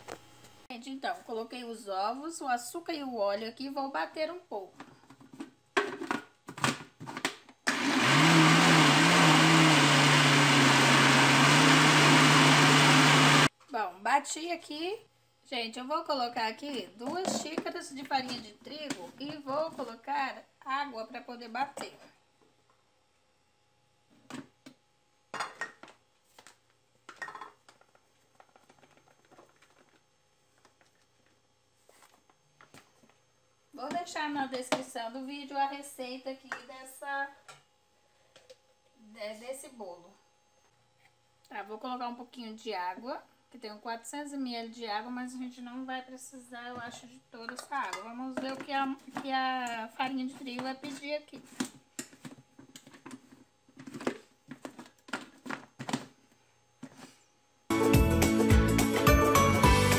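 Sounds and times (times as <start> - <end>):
blender motor running: 7.6 - 13.5.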